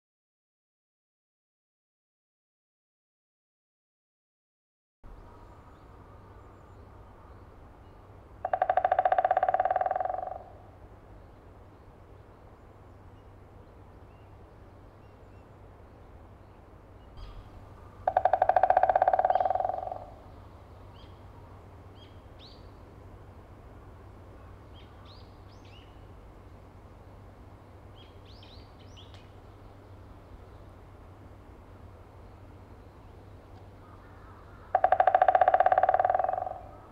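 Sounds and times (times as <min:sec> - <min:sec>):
woodpecker drumming on tree: 0:08.4 - 0:10.7, 0:18.0 - 0:20.3, 0:34.6 - 0:36.9.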